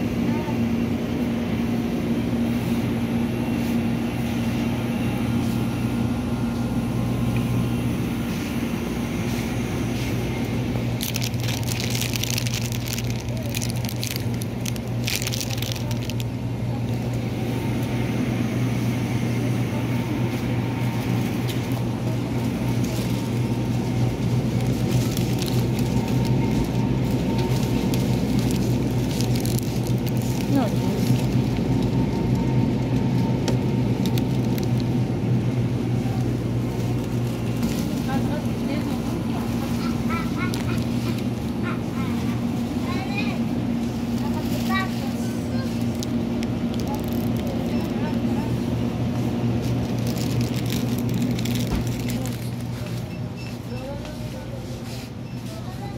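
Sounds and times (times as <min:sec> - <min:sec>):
shop refrigerators humming: 0:00.0 - 0:55.9
crackling rustle: 0:10.9 - 0:16.3, 0:21.0 - 0:33.1, 0:33.9 - 0:35.0, 0:36.2 - 0:43.1, 0:43.8 - 0:48.1, 0:49.2 - 0:55.9.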